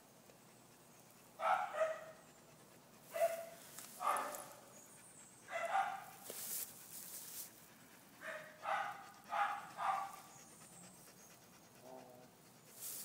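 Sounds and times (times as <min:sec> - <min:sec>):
dog giving yelping barks: 0:01.4 - 0:02.2, 0:03.1 - 0:04.6, 0:05.5 - 0:06.1, 0:08.2 - 0:10.3.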